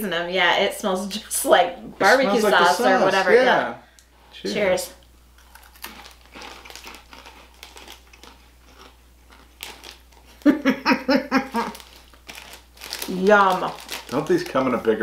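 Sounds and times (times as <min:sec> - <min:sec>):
crisps crunching while chewed: 0:05.3 - 0:10.5, 0:11.5 - 0:15.0.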